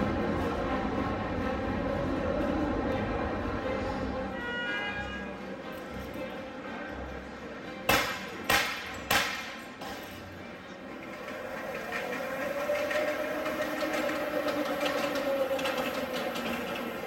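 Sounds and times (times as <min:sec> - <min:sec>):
wheels clicking on rails: 0:08.5 - 0:17.0
miniature train whine: 0:10.8 - 0:17.0.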